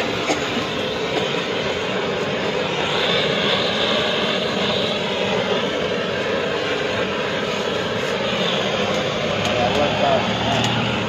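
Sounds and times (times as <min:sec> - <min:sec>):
gas torch roaring hiss: 0:00.0 - 0:11.0.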